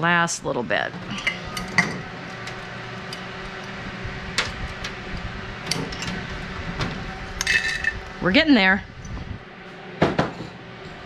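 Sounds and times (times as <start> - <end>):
food dehydrator fan hum: 0.0 - 11.0.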